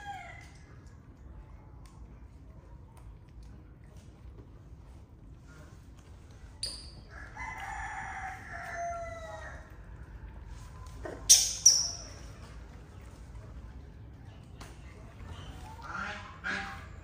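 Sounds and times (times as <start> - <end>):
rooster crowing: 7.1 - 9.8.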